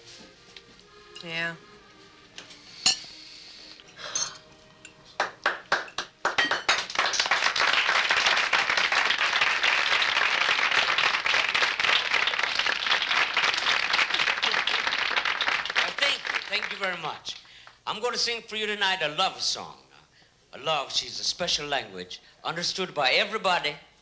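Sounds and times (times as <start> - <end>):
audience applauding: 5.2 - 17.8.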